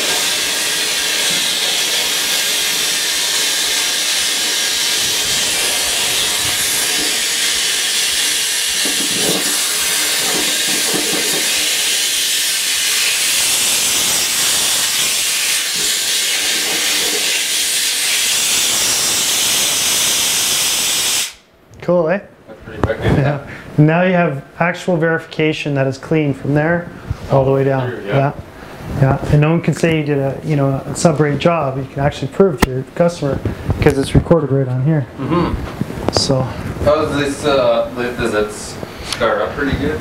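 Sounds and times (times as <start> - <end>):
compressed air hissing: 0.0 - 21.5.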